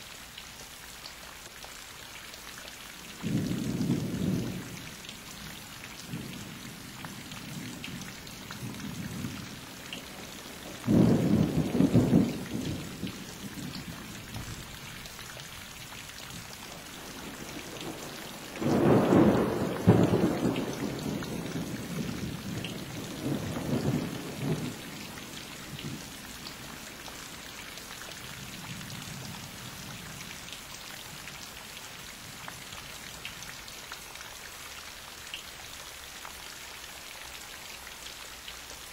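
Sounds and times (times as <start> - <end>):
steady rain: 0.0 - 38.9
thunder rumbling: 7.5 - 14.5, 16.3 - 26.6.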